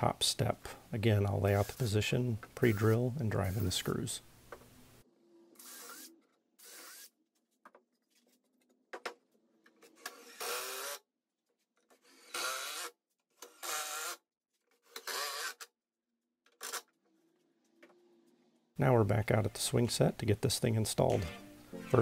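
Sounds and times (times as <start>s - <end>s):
cordless drill running: 13.6s - 14.2s.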